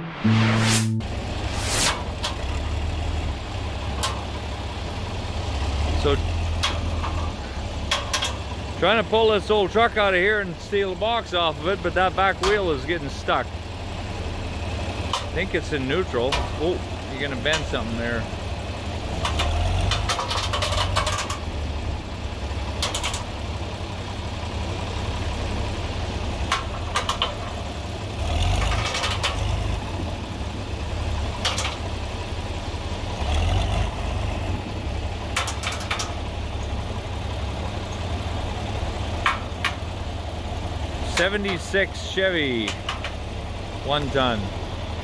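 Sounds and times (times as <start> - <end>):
tractor engine running: 0.0 - 45.0
sharp knocks and clanks: 19.2 - 21.5, 26.5 - 27.6, 31.4 - 31.8, 35.3 - 36.2, 39.2 - 39.8, 42.6 - 43.2.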